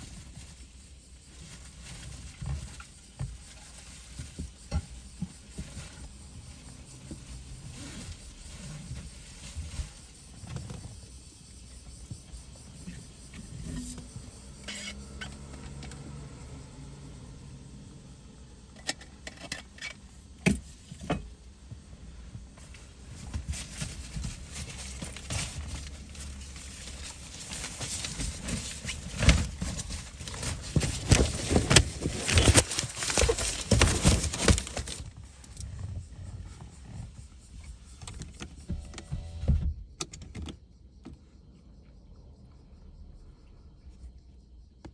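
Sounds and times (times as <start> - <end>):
cars going by: 14.0 - 18.7.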